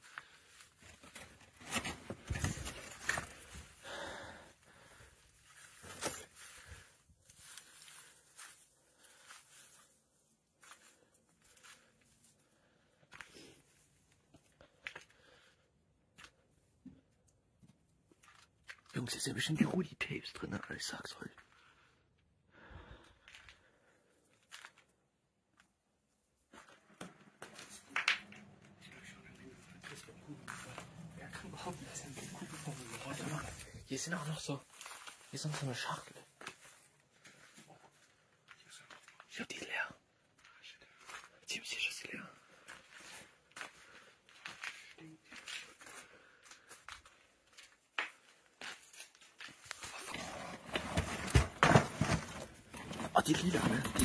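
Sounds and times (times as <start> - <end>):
faint rustling and handling: 0.0 - 15.5, 23.2 - 41.5
cardboard rustling and scraping: 49.8 - 53.9.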